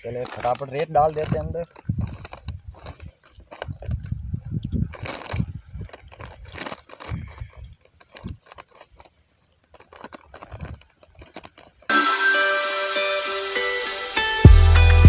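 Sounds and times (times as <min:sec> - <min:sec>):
sand rustling into plastic packet: 0:00.0 - 0:11.9
instrumental background music: 0:11.9 - 0:15.0.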